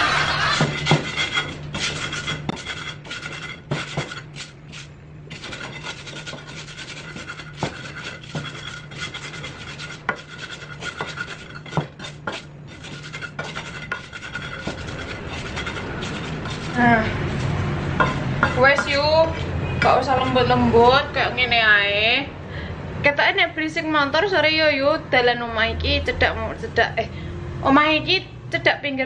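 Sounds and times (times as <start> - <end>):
pestle grinding in mortar: 0.0 - 20.5
stone knocking on bowl: 0.6 - 1.2, 18.0 - 19.1.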